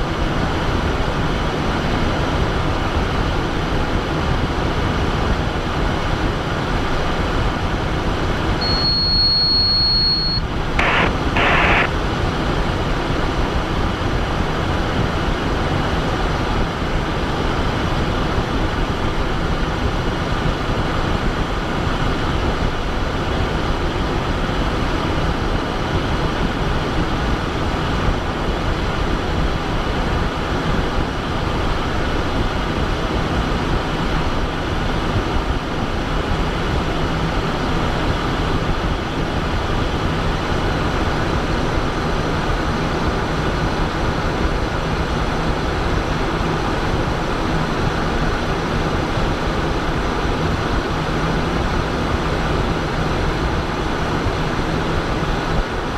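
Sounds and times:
jet cockpit rushing hum: 0.0 - 55.9
high steady beep: 8.6 - 11.9
short bursts of noise: 8.6 - 12.0.

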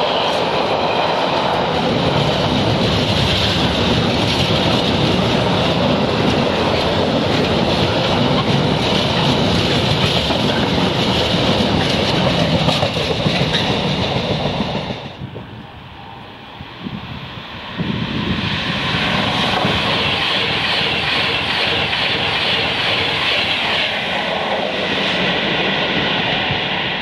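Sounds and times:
freight train passing: 0.0 - 27.0
wheels clattering on rails: 1.8 - 15.2.

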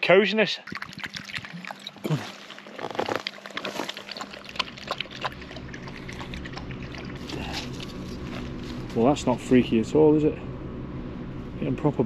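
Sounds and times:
low steady hum: 0.0 - 12.0
dog lapping water: 0.5 - 8.5.

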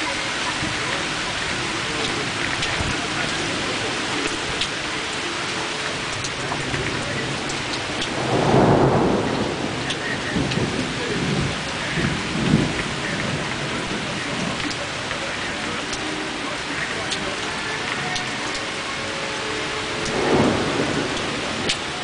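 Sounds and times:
heavy rain: 0.0 - 22.0
thunder rumbling: 5.9 - 16.0, 16.6 - 22.0.

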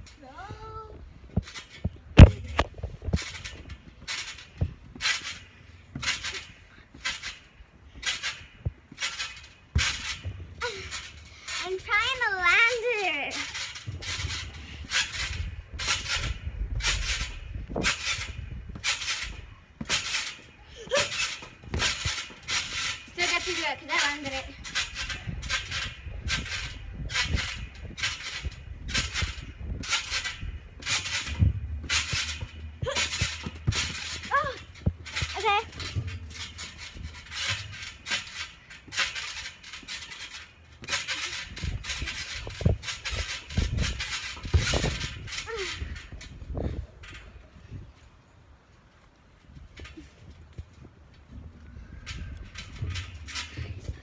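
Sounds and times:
low thuds: 0.0 - 48.0, 49.5 - 54.0
trampoline springs creaking: 0.0 - 54.0
heavy thump: 24.6 - 40.1.

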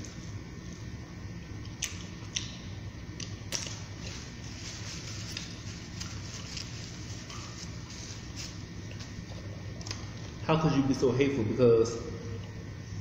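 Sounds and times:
low room hum: 0.0 - 13.0
wet chewing and mouth smacks: 1.6 - 4.2, 8.8 - 10.3.

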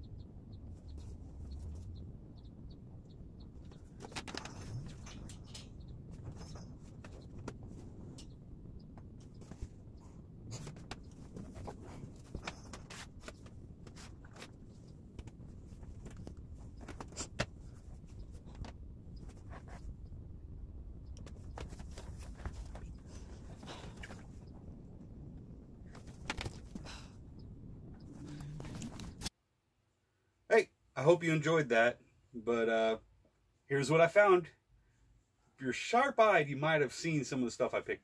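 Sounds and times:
rustling: 3.4 - 20.4, 21.2 - 27.2.

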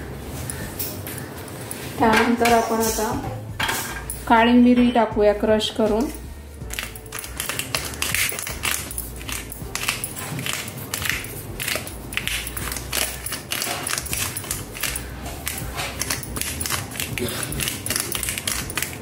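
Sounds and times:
peppercorns being crushed: 6.6 - 19.0.

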